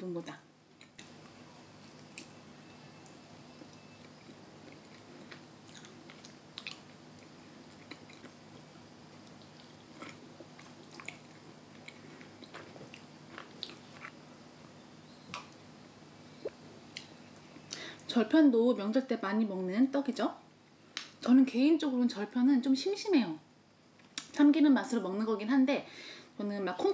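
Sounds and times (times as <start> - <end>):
mouth chewing sounds: 3.7 - 14.2.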